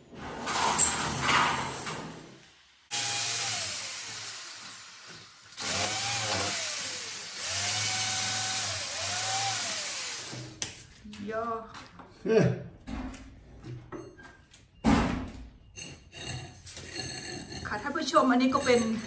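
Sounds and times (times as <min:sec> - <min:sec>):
power tool on brick wall: 0:02.9 - 0:10.6.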